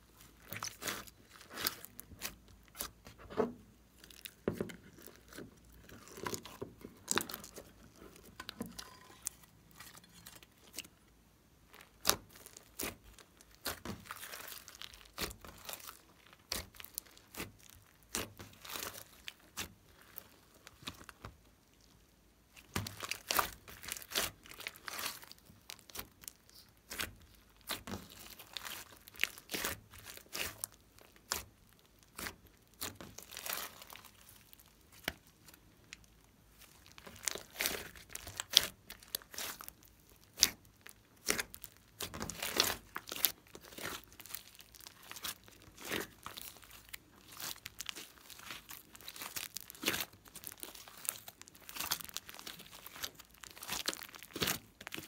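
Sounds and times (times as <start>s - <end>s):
slime squishing and popping: 11.7s - 21.4s, 22.6s - 55.0s.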